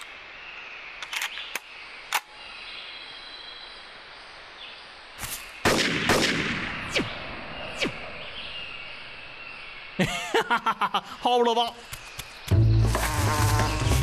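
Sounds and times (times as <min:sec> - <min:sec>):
loud gunshots: 0:05.6 - 0:07.1.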